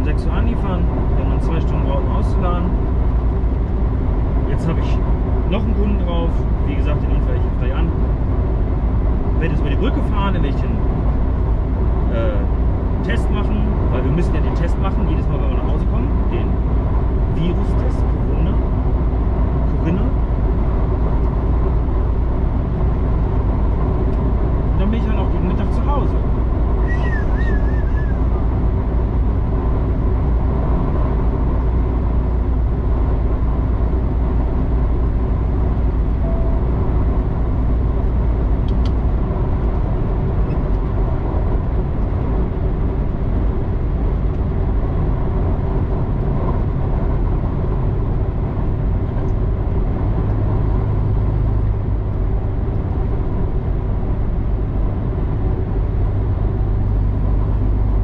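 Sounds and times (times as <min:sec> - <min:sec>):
truck engine and tyres droning: 0:00.0 - 0:58.0
deeper hum: 0:18.0 - 0:58.0.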